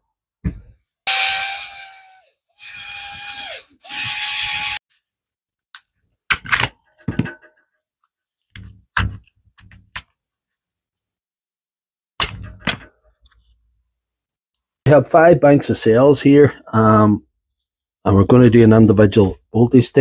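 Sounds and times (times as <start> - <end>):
cordless screwdriver whine: 1.1 - 4.8.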